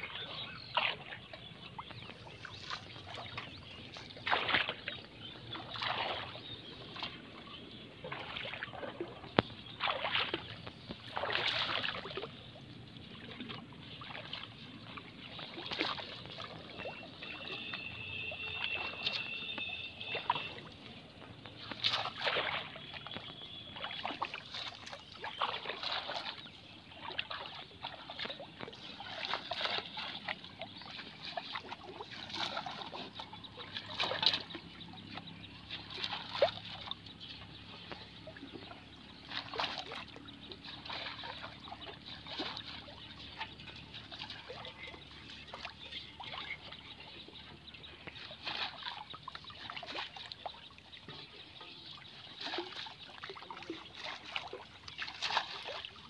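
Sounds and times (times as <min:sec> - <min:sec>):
water trickling and splashing: 0:00.0 - 0:56.0
water dripping: 0:13.4 - 0:34.6.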